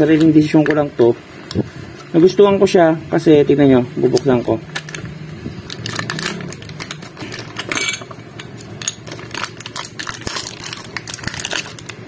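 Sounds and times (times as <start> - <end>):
packaging crinkling as torn open: 4.1 - 7.8, 8.4 - 12.0.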